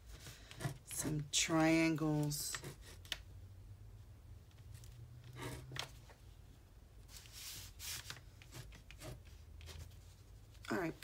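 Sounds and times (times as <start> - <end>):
pen scratching on paper: 5.3 - 5.8, 8.4 - 9.9.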